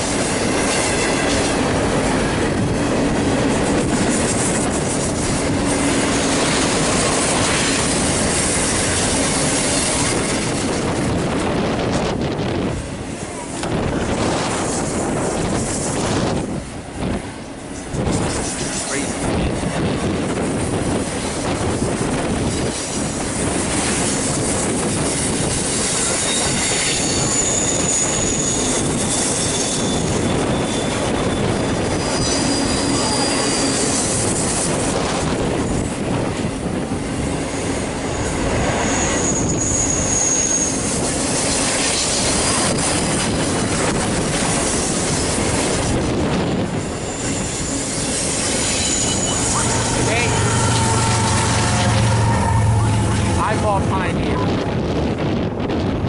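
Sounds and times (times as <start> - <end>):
train wheels rumbling on rails: 0.0 - 56.0
high-pitched wheel squeals: 26.0 - 34.2, 38.1 - 40.9, 46.7 - 53.4.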